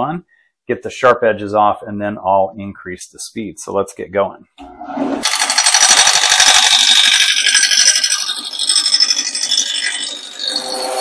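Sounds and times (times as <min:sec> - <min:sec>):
lathe gouge chattering on wood: 0:05.2 - 0:11.0.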